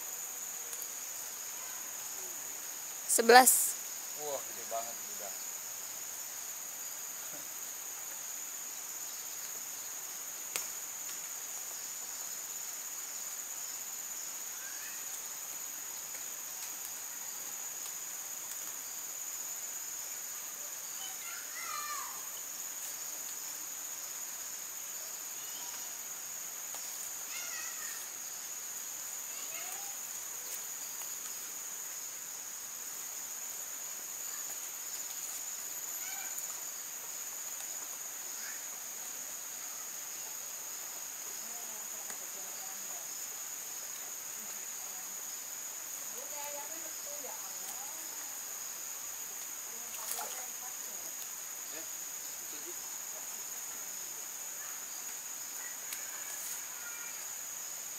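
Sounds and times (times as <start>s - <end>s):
insects droning: 0.0s - 57.9s
faint chirps: 14.3s - 17.5s, 20.6s - 26.2s.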